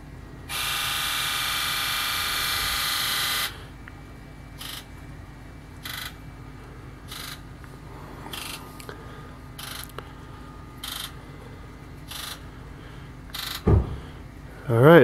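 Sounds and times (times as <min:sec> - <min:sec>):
fuel injectors buzzing: 0:00.4 - 0:05.0, 0:05.8 - 0:14.5.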